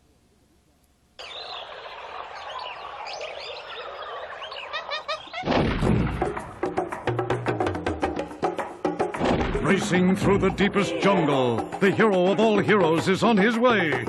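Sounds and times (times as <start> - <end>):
birds chirping and calling: 1.2 - 5.6
drum-driven music: 5.5 - 14.0.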